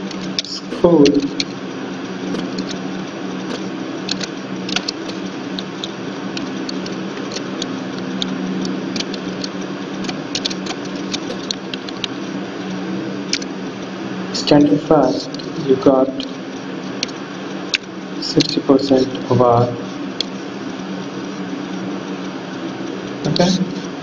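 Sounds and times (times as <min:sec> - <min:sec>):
steady low hum: 0:00.0 - 0:24.0
keyboard typing: 0:02.2 - 0:12.2.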